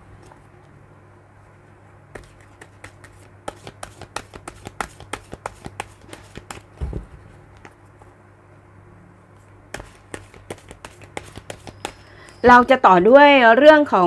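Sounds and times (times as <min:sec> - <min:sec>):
cards being shuffled: 0:02.1 - 0:06.8, 0:09.7 - 0:12.4
dull thump: 0:06.8 - 0:07.2.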